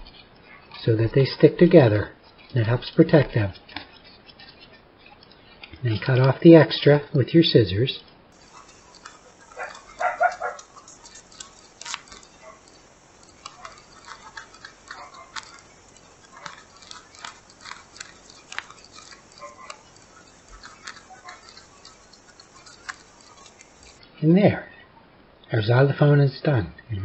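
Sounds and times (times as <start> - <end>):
scissors snipping contact paper: 8.4 - 24.0.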